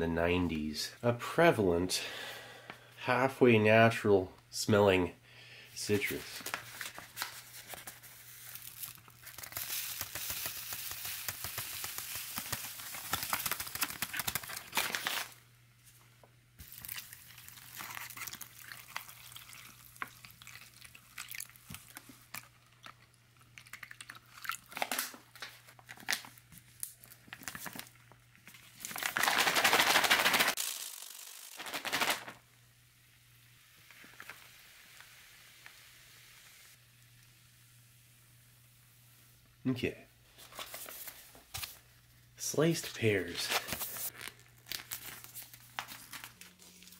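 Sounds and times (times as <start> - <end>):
plastic bag crinkling: 6.1 - 15.4, 16.6 - 32.4, 43.3 - 46.9
bag being shaken: 8.6 - 15.3, 28.8 - 32.4.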